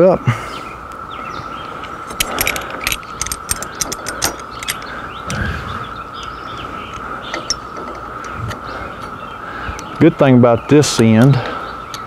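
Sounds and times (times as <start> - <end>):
steady high hum: 0.0 - 12.0
awning spring mechanism clicking: 2.1 - 5.4.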